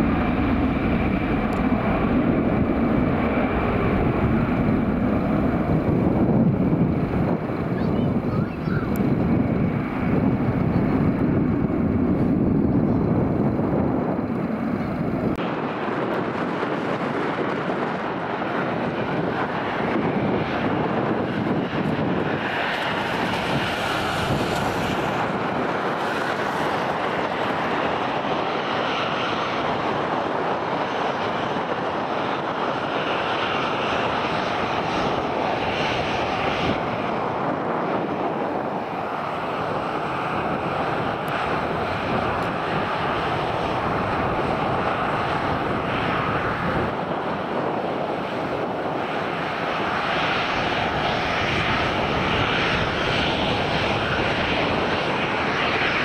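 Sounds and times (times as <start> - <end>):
heavy low rumble: 0.0 - 26.7
airliner engines at high power: 0.0 - 56.0.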